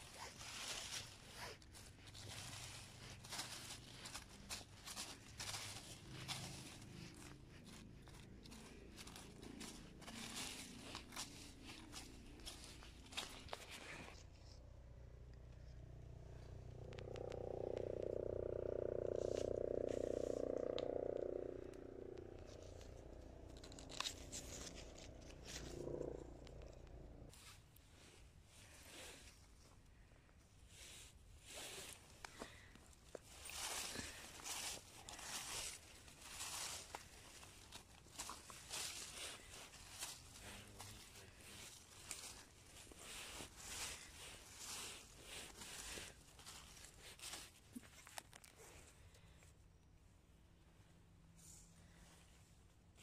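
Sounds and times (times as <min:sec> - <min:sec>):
rustling of wet leaves: 0:00.0 - 0:14.3, 0:16.9 - 0:26.7, 0:31.4 - 0:48.8
steady low hum: 0:00.0 - 0:27.3.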